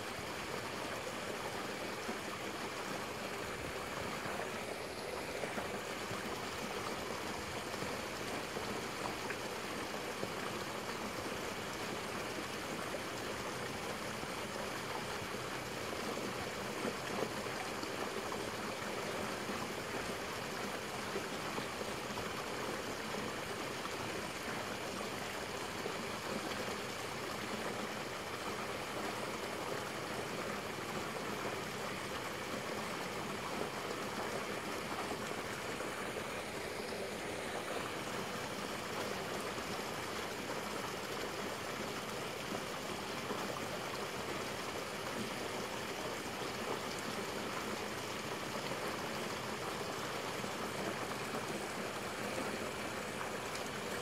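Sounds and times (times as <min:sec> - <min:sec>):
flowing water rushing: 0:00.0 - 0:54.0.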